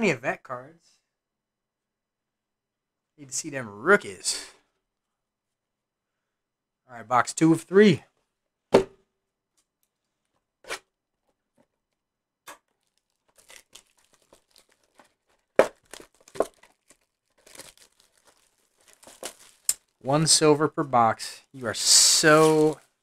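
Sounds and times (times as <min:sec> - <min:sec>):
plastic wrap crinkling: 0:12.7 - 0:20.0, 0:21.8 - 0:23.0
plastic wrap ripping: 0:12.7 - 0:20.0, 0:21.8 - 0:23.0.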